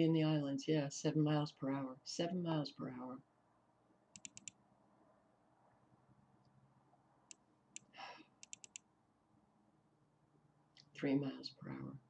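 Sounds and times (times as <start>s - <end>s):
computer mouse clicking: 4.1s - 4.6s, 7.3s - 8.8s.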